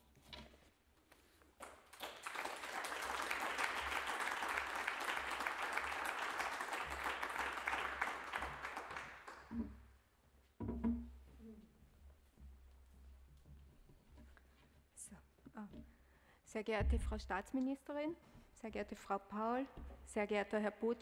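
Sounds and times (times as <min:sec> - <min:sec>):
small audience applauding: 0:01.6 - 0:09.7.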